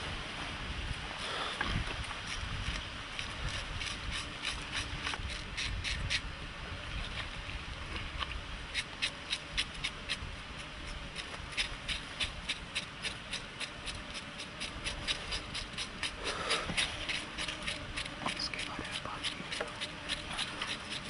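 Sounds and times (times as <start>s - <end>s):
knife scraping charred meat: 2.2s - 6.3s, 8.7s - 21.0s.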